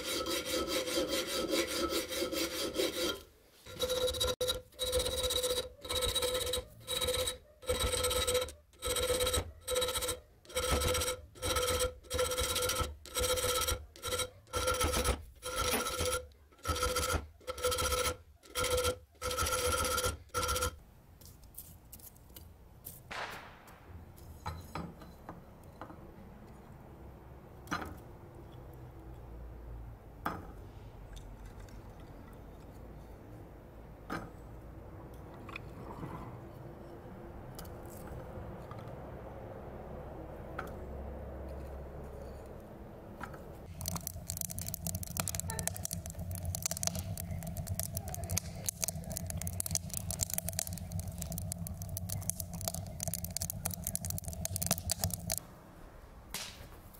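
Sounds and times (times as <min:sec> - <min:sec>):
file scraping knife blade: 0:00.0 - 0:20.7.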